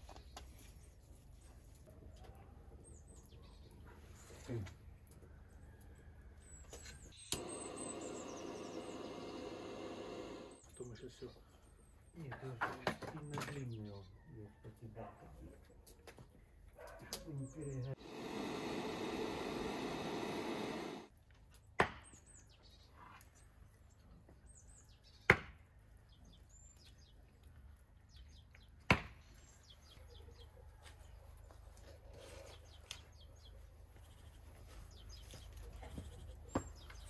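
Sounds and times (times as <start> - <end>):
birds chirping: 0.0 - 21.1, 22.0 - 37.0
steady rushing noise: 18.0 - 21.1.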